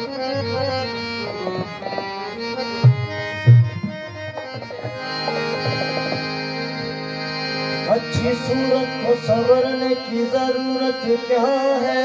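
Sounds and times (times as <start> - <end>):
harmonium playing melody: 0.0 - 12.0
deep tabla strokes: 0.3 - 7.0.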